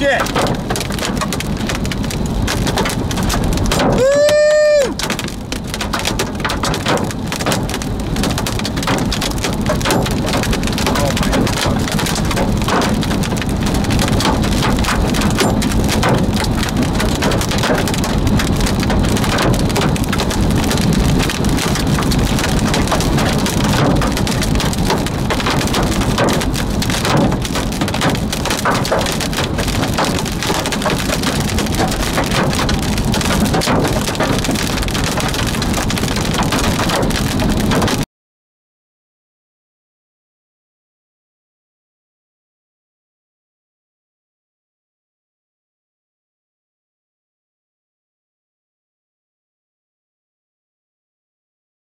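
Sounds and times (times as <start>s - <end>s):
rain pelting car roof: 0.0s - 38.1s.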